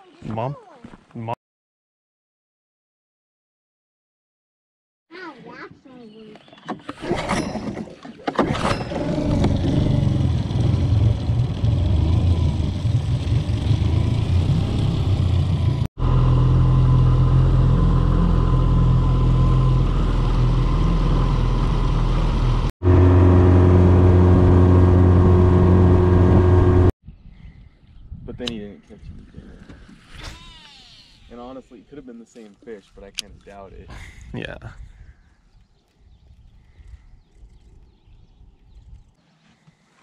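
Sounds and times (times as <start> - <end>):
engine running steadily: 8.8 - 26.9.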